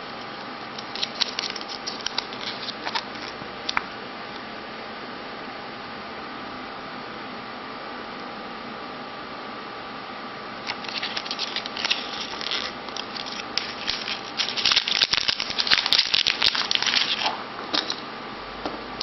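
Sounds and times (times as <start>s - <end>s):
plastic bag crinkling: 0.8s - 3.4s, 10.6s - 18.0s.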